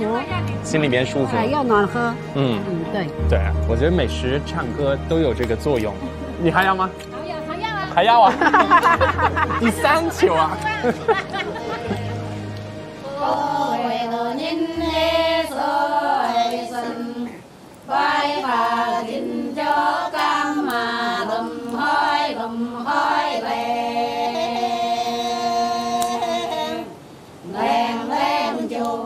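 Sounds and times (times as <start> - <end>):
women singing unaccompanied: 0.0 - 0.6, 9.8 - 29.0.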